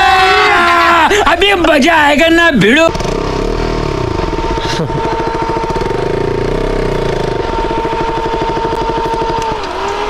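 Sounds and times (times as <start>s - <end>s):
motorcycle engine idling: 2.9s - 10.0s.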